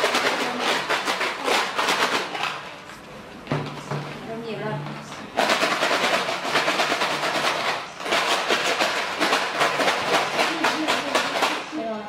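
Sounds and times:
lots rattling in plastic ball: 0.0s - 2.9s, 5.3s - 12.0s.

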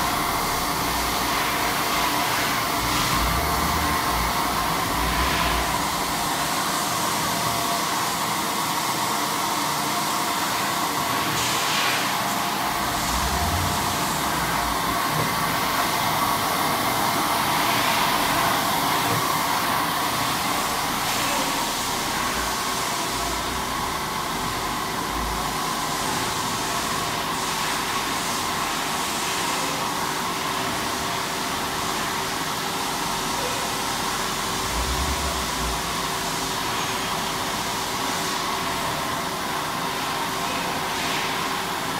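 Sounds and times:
machine motors and fans whirring: 0.0s - 41.9s.

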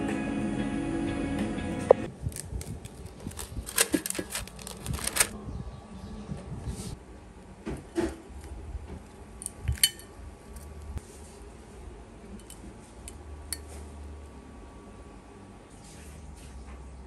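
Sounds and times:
parchment paper rustling: 2.2s - 5.4s.

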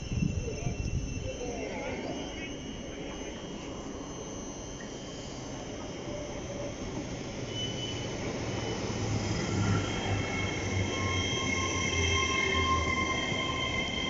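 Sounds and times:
high multi-tone whine: 0.0s - 14.0s
train wheels rumbling on rails: 5.8s - 14.0s.

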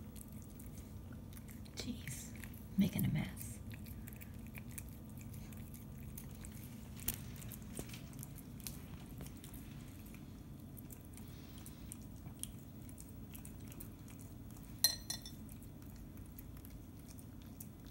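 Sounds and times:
cat chewing wet food: 0.0s - 17.9s
saucer clink: 14.8s - 15.4s.

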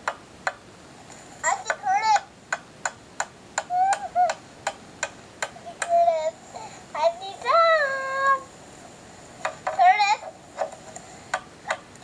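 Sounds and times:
young child's voice: 1.4s - 2.3s, 3.7s - 4.4s, 5.6s - 8.5s, 9.8s - 10.3s.

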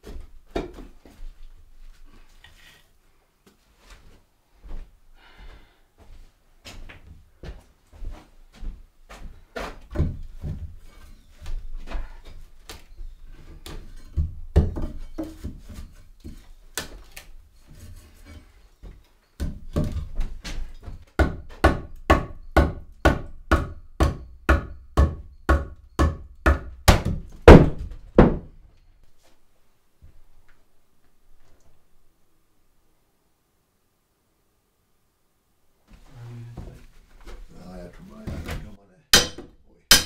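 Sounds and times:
hammer knocking on wood: 21.2s - 28.5s.

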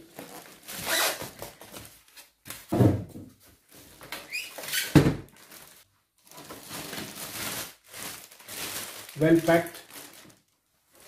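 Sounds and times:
plastic wrap rustling: 0.0s - 2.7s, 3.4s - 11.0s
foam squeaking and scraping: 0.6s - 1.3s, 4.3s - 4.9s.

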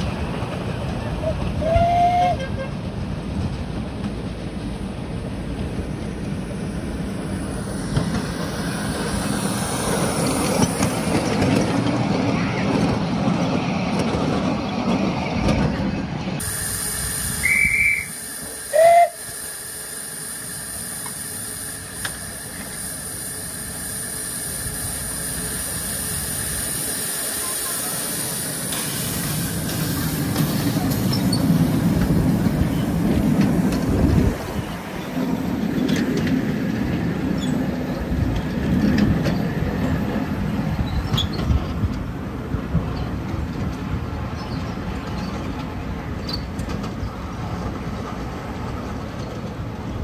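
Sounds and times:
miniature trains running on track: 0.0s - 50.0s
train whistle toots: 1.3s - 2.8s, 16.7s - 19.4s
steam hissing: 3.1s - 12.2s, 16.4s - 43.2s
wind noise on microphone: 31.8s - 35.0s.

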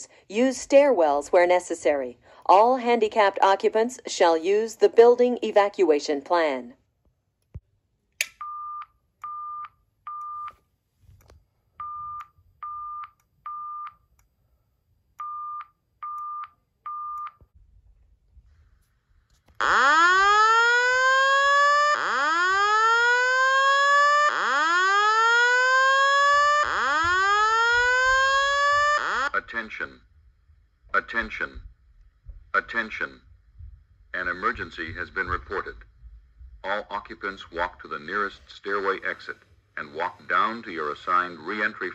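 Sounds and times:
fire alarm short beeps: 8.3s - 10.6s, 11.8s - 14.1s, 15.2s - 17.5s
fire alarm rising whoop: 19.6s - 29.3s.

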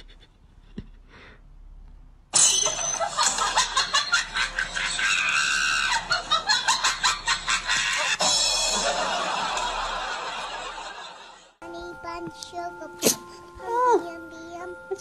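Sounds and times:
person laughing loudly: 3.3s - 10.1s.

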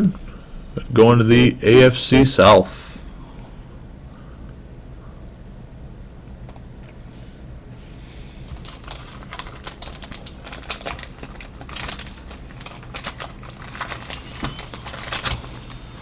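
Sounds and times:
trading cards crinkling: 8.5s - 16.0s.

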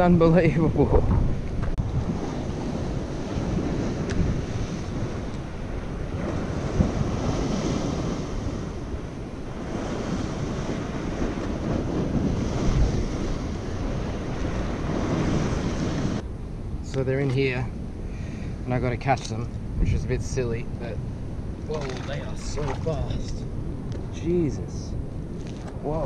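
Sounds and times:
wind buffeting microphone: 0.0s - 26.0s
surf breaking against rocks: 1.8s - 16.2s, 21.6s - 23.4s.

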